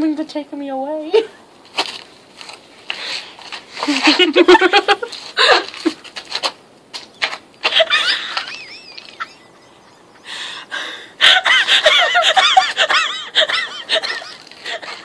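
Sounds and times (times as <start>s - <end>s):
girls laughing: 3.8s - 6.0s, 7.6s - 15.0s.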